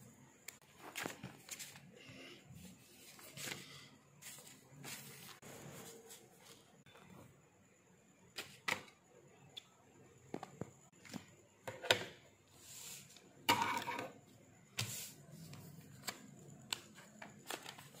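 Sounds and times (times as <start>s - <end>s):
paper pages rustling: 0.6s - 1.9s.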